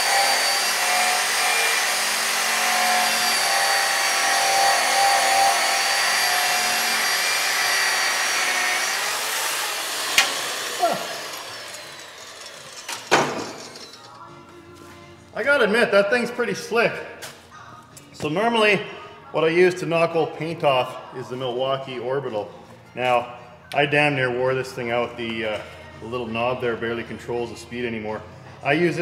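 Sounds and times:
polisher grinding whine: 0.0s - 14.1s.

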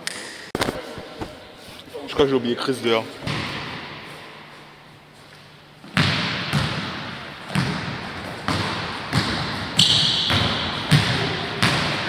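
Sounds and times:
basketball bouncing on wooden floor: 3.3s - 3.8s, 5.8s - 12.0s.

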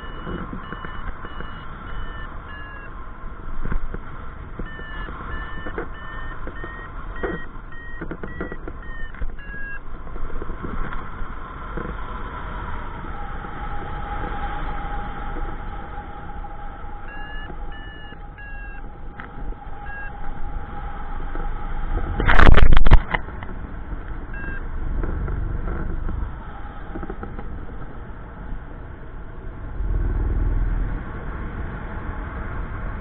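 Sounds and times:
variometer short high beeps: 0.0s - 2.9s, 4.6s - 9.8s, 17.0s - 18.9s, 19.8s - 20.2s, 24.3s - 24.6s
wind on microphone: 8.0s - 33.0s.

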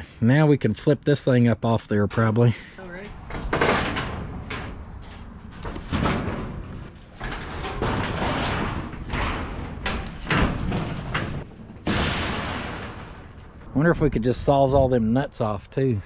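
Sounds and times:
sheet metal rattling and scraping: 3.1s - 14.9s.

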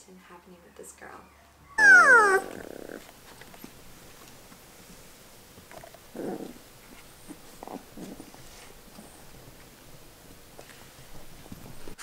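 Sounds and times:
puppies stirring: 0.6s - 12.0s
puppy squeak: 1.2s - 2.6s
short rough puppy sound: 1.8s - 3.1s.

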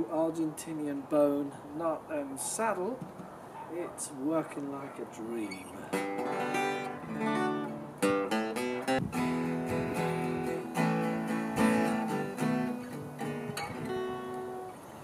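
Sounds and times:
acoustic guitar playing: 5.8s - 15.0s.

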